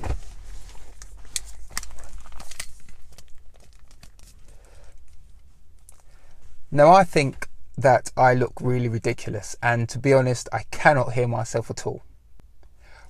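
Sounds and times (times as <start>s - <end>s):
headset handling rustling: 0.0s - 5.9s.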